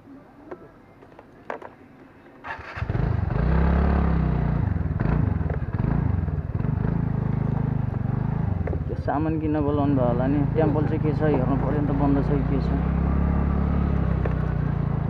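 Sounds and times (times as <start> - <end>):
scooter engine starting: 2.4 - 8.9.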